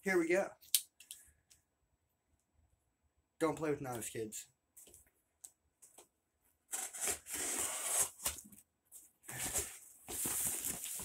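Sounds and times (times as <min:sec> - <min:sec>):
knife slitting packing tape: 0:06.7 - 0:08.4.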